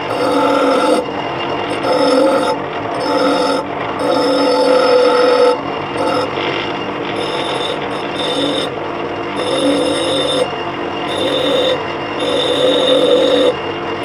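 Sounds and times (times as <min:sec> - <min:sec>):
nail grinding on wheel: 0:00.0 - 0:08.8, 0:09.4 - 0:13.6
bench grinder motor whine: 0:00.0 - 0:14.0.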